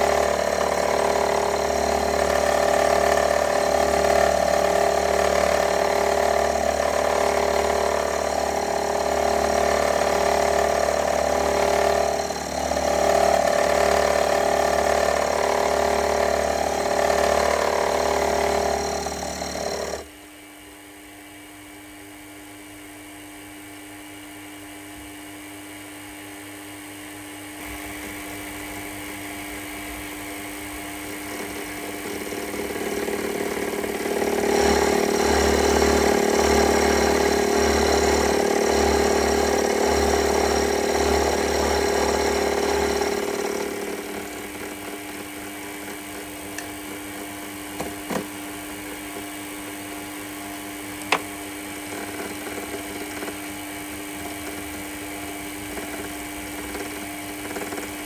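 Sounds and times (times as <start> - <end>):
machine tool whining: 0.0 - 20.1, 30.4 - 49.3.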